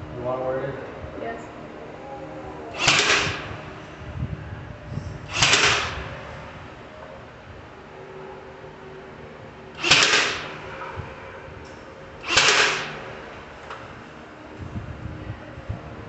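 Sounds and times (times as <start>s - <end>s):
nailer firing into wood: 2.8s - 3.5s, 5.3s - 6.1s, 9.8s - 10.6s, 12.2s - 13.1s.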